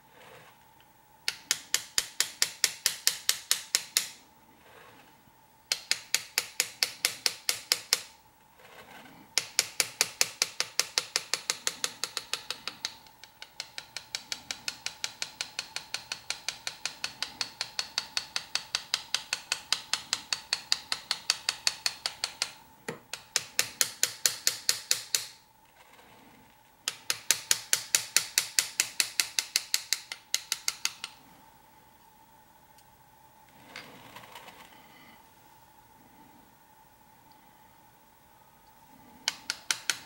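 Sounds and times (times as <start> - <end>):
hammer tapping metal chisel: 1.3 - 4.2, 5.7 - 8.2, 8.8 - 25.4, 26.8 - 31.2, 39.0 - 40.0.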